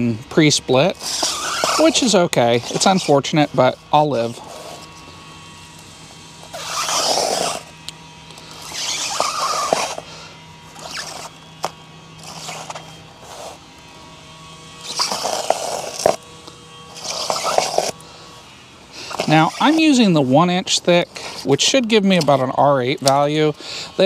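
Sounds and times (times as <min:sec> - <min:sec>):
faint steady hum: 0:00.0 - 0:24.0
knife slitting foam tube: 0:00.9 - 0:04.9, 0:06.4 - 0:07.7, 0:08.5 - 0:10.1, 0:10.8 - 0:13.6, 0:14.8 - 0:16.2, 0:17.0 - 0:18.0, 0:19.0 - 0:20.0.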